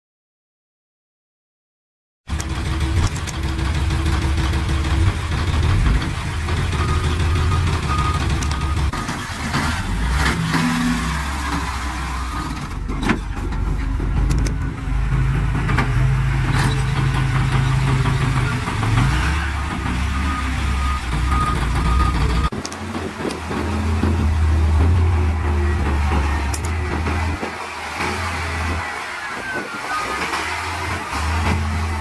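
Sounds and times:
knocks and clanks: 2.3 - 10.8, 11.4 - 20.3, 21.0 - 28.8
heavy diesel engines running: 2.3 - 32.0.

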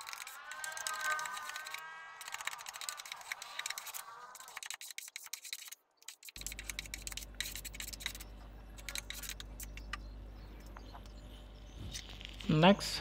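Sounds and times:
steady low hum: 6.4 - 13.0.

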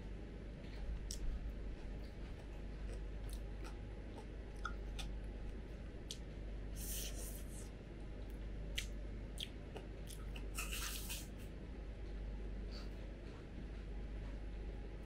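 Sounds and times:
chewing: 0.6 - 6.2, 8.7 - 11.3.

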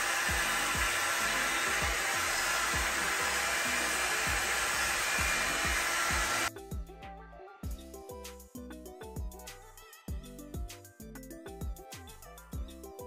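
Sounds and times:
hot-air brush blowing: 0.0 - 6.5
background music with steady beat: 0.0 - 13.0.

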